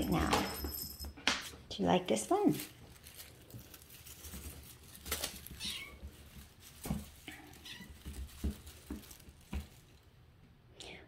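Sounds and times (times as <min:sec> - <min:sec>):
kitten mewing: 0:05.6 - 0:06.0.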